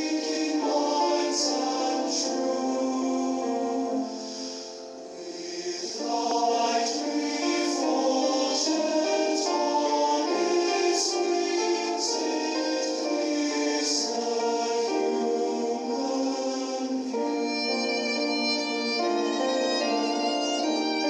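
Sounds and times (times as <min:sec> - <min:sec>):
choir singing sustained notes: 0:00.0 - 0:21.0.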